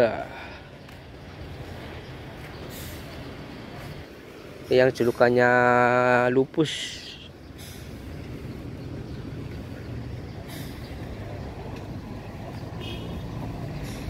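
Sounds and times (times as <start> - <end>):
brief air hisses: 2.7 - 3.1, 7.6 - 8.1, 10.5 - 10.9
diesel bus engine idling: 6.7 - 12.8.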